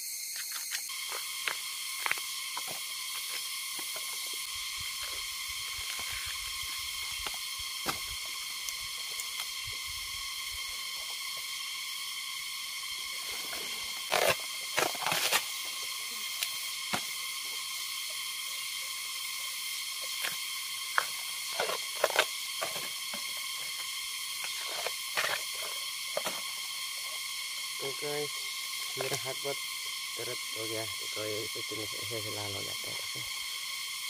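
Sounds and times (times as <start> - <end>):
steady high hiss: 0.0 - 34.0
bamboo husk ripping and rustling: 13.5 - 15.6.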